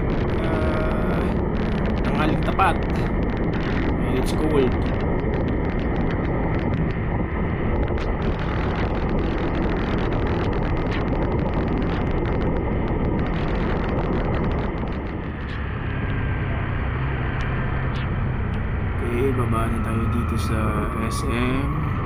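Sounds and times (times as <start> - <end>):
raindrops tapping camera: 0.0 - 16.2
wind on microphone: 0.0 - 22.0.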